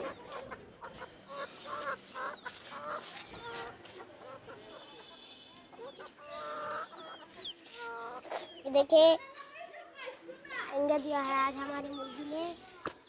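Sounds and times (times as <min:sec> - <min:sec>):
hens clucking: 0:00.0 - 0:08.7.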